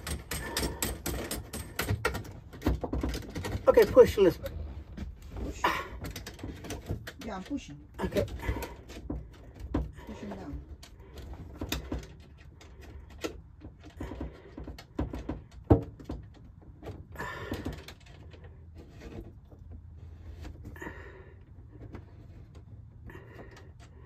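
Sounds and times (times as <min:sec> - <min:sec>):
hands working faucet hardware: 0:00.0 - 0:04.1.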